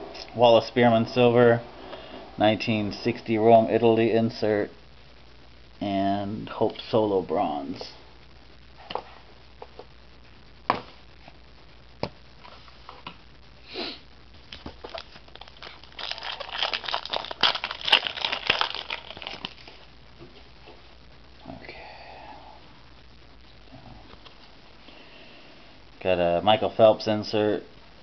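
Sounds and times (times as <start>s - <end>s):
wrapper crinkling and tearing: 14.4s - 19.9s.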